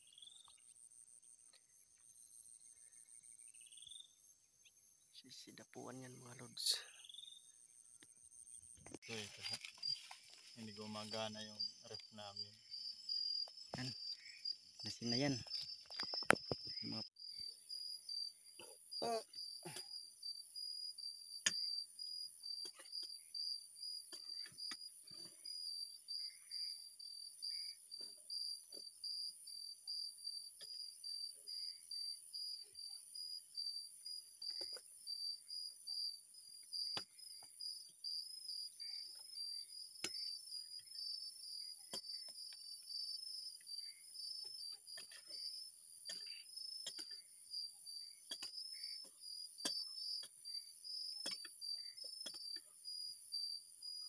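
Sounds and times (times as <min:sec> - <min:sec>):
insect pulsing chirp: 0:00.0 - 0:54.0
insect high steady trill: 0:04.9 - 0:54.0.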